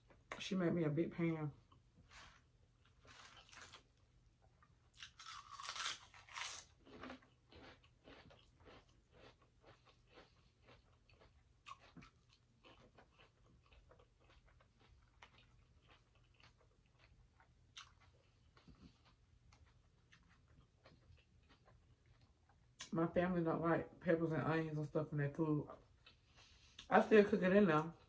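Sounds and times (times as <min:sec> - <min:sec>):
potato chip crunching: 0:03.0 - 0:04.0, 0:04.9 - 0:17.2.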